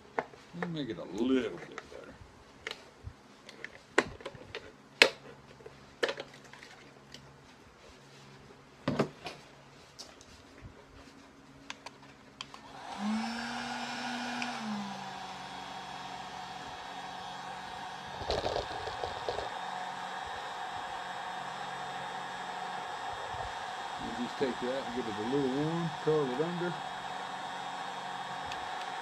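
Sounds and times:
heat gun blowing whir: 12.5 - 29.0.

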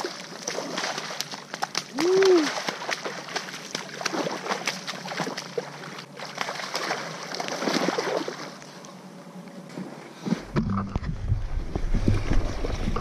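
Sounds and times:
fish thrashing and splashing water: 0.0 - 8.6.

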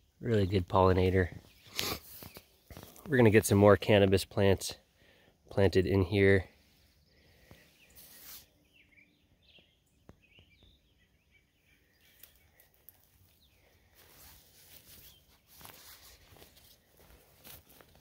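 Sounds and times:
soft scuffing steps: 14.0 - 18.0.

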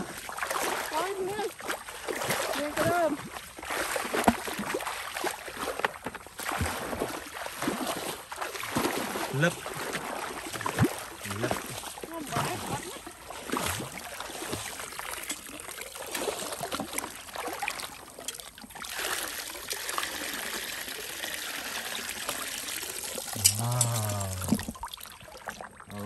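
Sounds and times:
small water splashes: 0.0 - 26.0
water pouring from bucket: 0.0 - 26.0
short voice: 23.4 - 24.6.

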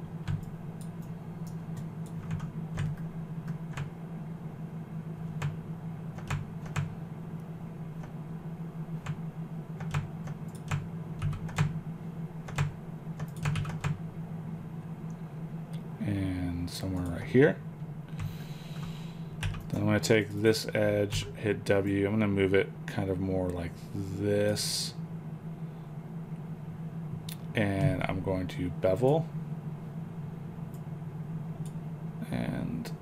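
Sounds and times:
low hum: 0.0 - 33.0
keyboard and mouse clicks: 9.8 - 11.8, 12.5 - 14.0.

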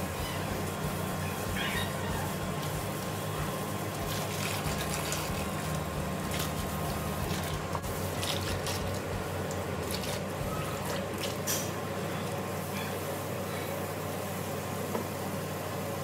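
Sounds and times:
water from hose splashing: 0.0 - 12.4
steady low hum: 0.0 - 16.0.

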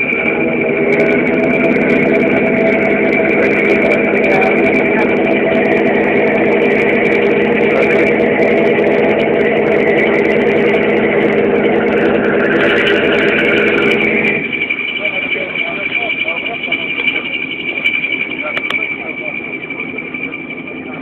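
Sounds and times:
ship engine humming: 0.0 - 21.0.

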